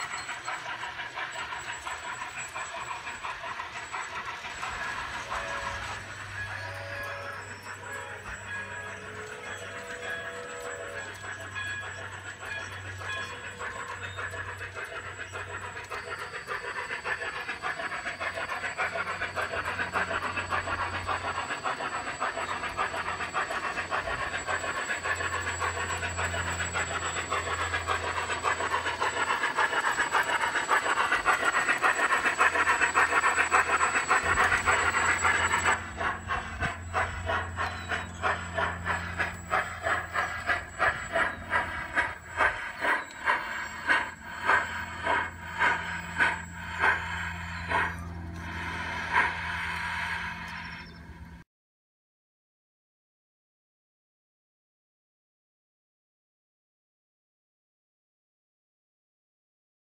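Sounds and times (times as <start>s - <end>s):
train wheels clicking over track: 0.0s - 51.1s
steam locomotive chuffing: 0.0s - 51.4s.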